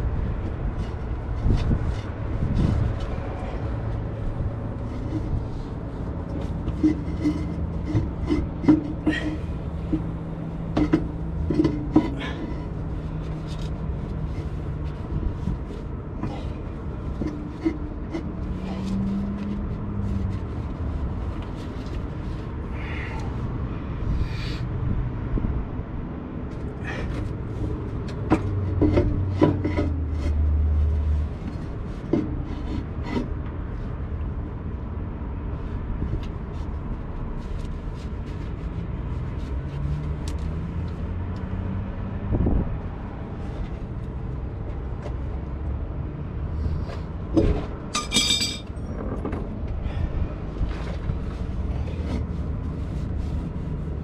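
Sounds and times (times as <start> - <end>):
steady low rumble: 0.0 - 39.6
metal clatter: 47.4 - 49.4.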